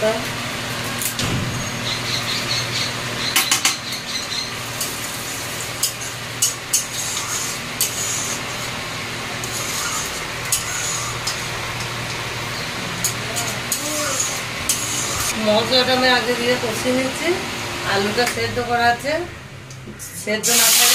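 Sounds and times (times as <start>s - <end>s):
spices sizzling in hot oil: 1.8s - 15.4s, 20.4s - 20.9s
metal spoon scraping pan: 5.8s - 8.7s, 9.4s - 11.5s.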